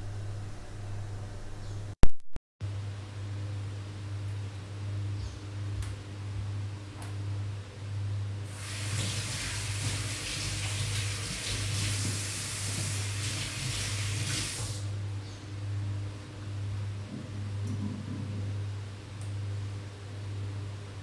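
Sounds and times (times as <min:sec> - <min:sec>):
steady low hum: 0:00.0 - 0:02.0, 0:02.6 - 0:12.0, 0:14.8 - 0:21.0
water rushing from kitchen tap: 0:08.5 - 0:14.9.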